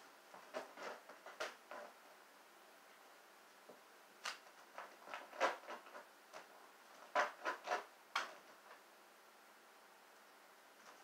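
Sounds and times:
kitten claws scratching fabric: 0:00.4 - 0:02.0, 0:04.2 - 0:08.8.

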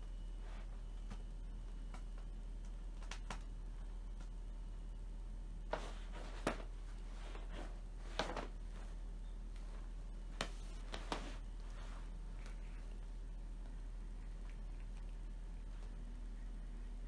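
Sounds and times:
low steady hum: 0:00.0 - 0:17.0
cat tapping and scratching a mat: 0:01.0 - 0:03.5.

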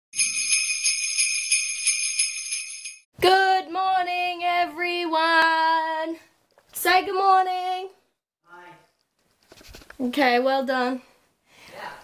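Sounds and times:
jingle bells shaken: 0:00.2 - 0:03.1.

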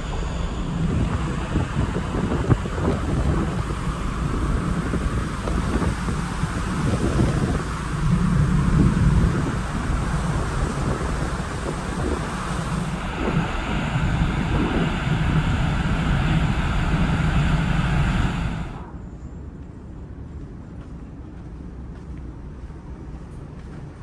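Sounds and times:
bow wave rushing: 0:00.0 - 0:19.1
wind buffeting microphone: 0:00.0 - 0:21.2
mechanical rushing hum: 0:00.0 - 0:24.0.

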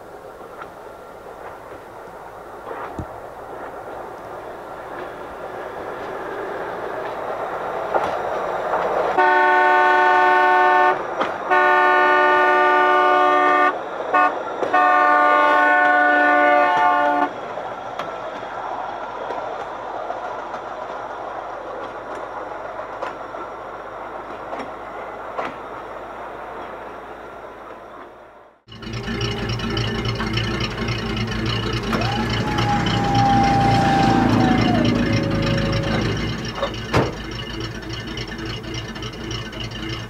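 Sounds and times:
wheels rolling on rails: 0:00.0 - 0:10.2, 0:10.9 - 0:11.6, 0:16.6 - 0:40.0
multi-tone vehicle horn: 0:09.2 - 0:17.4.

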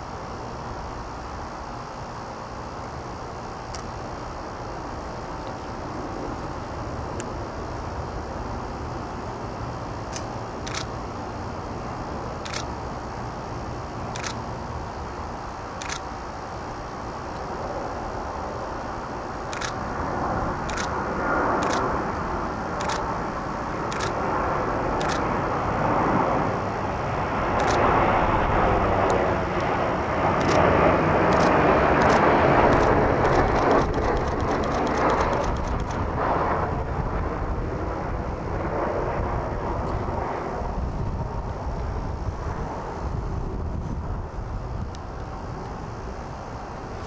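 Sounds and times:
jet airliner passing overhead: 0:00.0 - 0:47.0
camera shutter clicks: 0:10.1 - 0:10.9, 0:12.4 - 0:12.7, 0:14.2 - 0:14.4, 0:15.8 - 0:16.1, 0:19.5 - 0:19.8, 0:20.7 - 0:20.9, 0:21.6 - 0:21.8, 0:22.8 - 0:23.0, 0:23.9 - 0:24.2, 0:25.0 - 0:25.2, 0:27.6 - 0:27.8, 0:30.4 - 0:30.6, 0:31.3 - 0:36.0.

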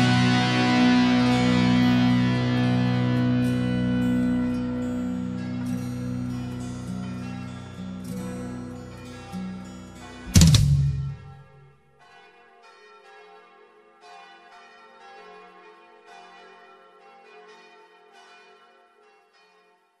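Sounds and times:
soft bell-like chimes: 0:01.0 - 0:10.3
final drum hit ringing: 0:10.3 - 0:11.4.

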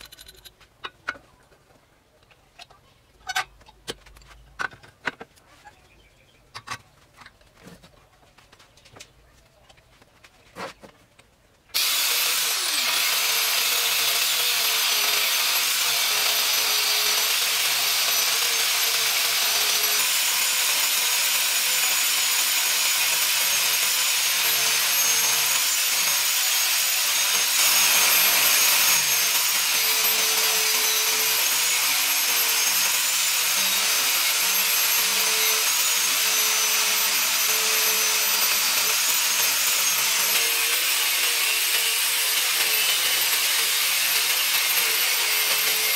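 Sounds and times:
angle grinder cutting steel: 0:11.8 - 0:45.9.

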